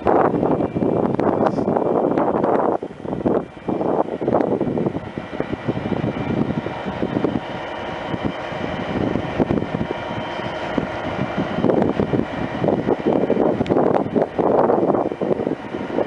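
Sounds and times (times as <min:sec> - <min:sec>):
electric train pulling away: 0:00.0 - 0:16.0
wind buffeting microphone: 0:00.0 - 0:16.0.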